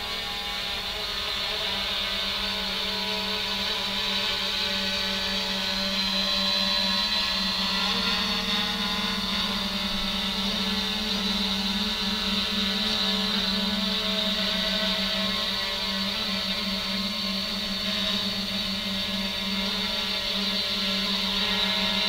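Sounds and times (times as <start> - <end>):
quadcopter motors humming: 0.0 - 22.0.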